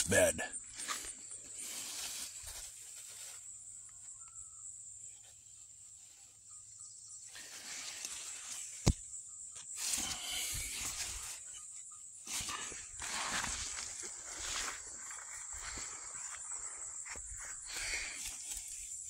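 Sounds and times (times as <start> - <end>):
leaves rustling: 0.0 - 3.6, 7.3 - 9.0, 12.2 - 16.7.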